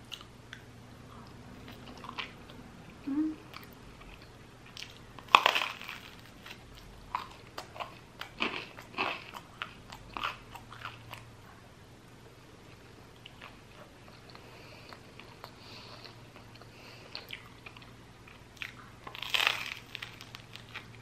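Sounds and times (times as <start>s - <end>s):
crunchy chewing: 3.5s - 11.3s, 13.1s - 21.0s
crunching bite of bread: 4.8s - 11.2s, 18.6s - 21.0s.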